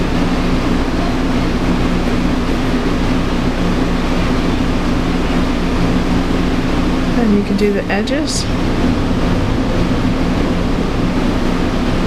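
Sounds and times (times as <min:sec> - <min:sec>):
steady machine hum: 0:00.0 - 0:12.0
rushing noise: 0:08.2 - 0:12.0.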